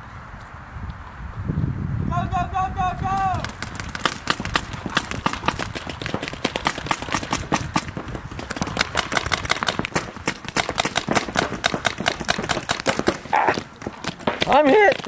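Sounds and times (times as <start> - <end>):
paintball markers firing: 3.1 - 15.0.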